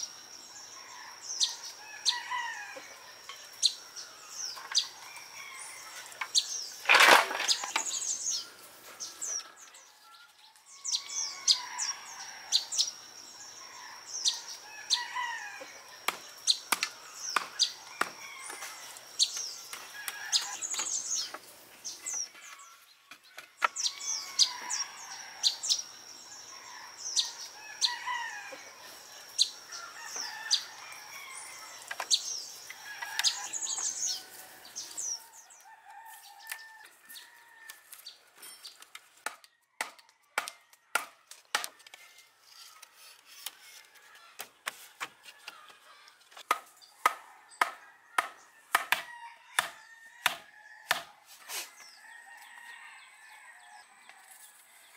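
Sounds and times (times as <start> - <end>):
birds chirping: 0.0 - 39.0
wooden club pounding a post: 46.5 - 51.1.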